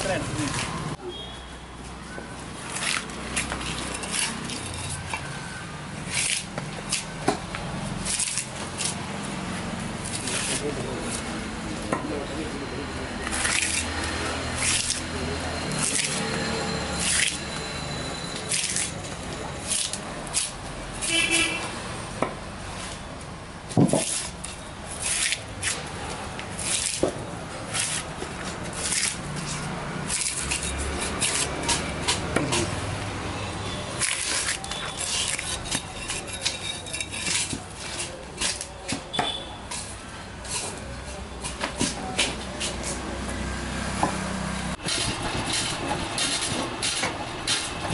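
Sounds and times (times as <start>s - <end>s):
machete chopping wood: 15.8s - 16.3s, 23.7s - 24.4s, 26.6s - 28.1s, 30.1s - 32.7s, 44.8s - 47.9s.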